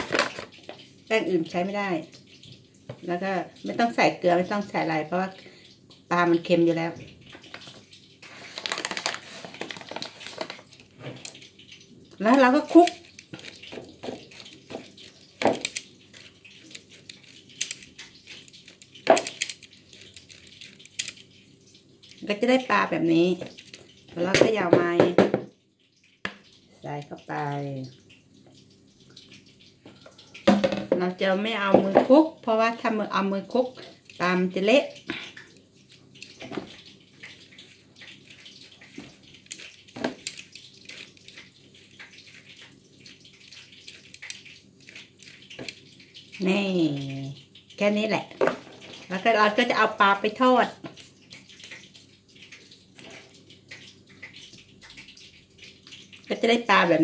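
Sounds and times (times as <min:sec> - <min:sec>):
fish rattling in mesh strainer: 0:08.3 - 0:11.5
loud knocks on strainer: 0:24.4 - 0:25.5, 0:30.5 - 0:31.0.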